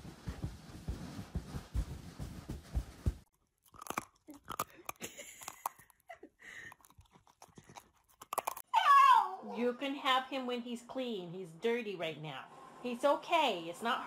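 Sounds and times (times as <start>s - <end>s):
dog crunching toast: 3.3s - 8.6s.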